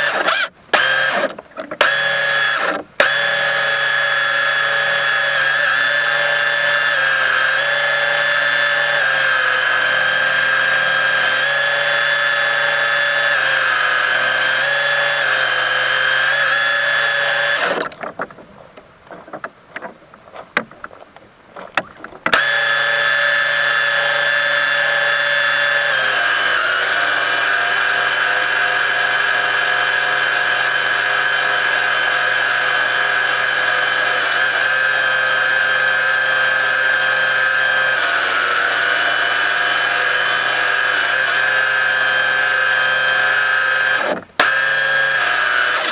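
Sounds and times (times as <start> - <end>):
model boat motor whine: 0.0 - 18.2, 21.8 - 45.9
faint knocks: 17.9 - 22.4.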